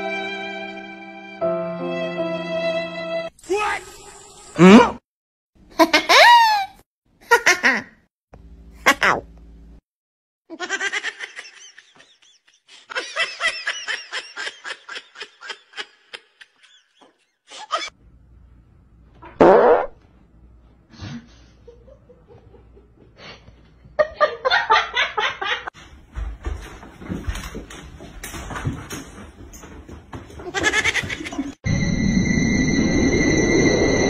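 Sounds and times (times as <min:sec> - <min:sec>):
rhythmic laughter: 0:30.4 - 0:31.6.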